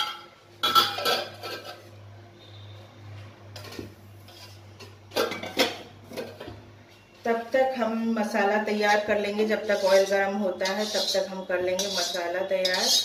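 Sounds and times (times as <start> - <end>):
metal cookware clanking: 0.0 - 1.9, 3.6 - 6.6, 9.2 - 13.0
low steady hum: 0.0 - 13.0.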